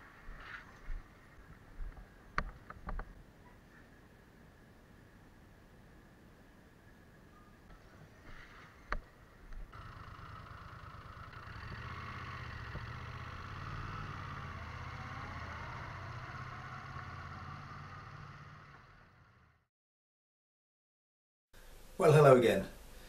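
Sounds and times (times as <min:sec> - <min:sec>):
vehicle motor running: 0:09.5 - 0:19.7.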